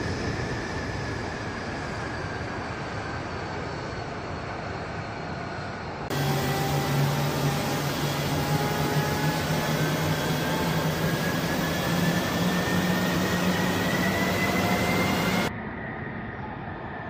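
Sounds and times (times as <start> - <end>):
jet engine running: 0.0 - 15.9
turbine whine rising in pitch: 6.1 - 17.0.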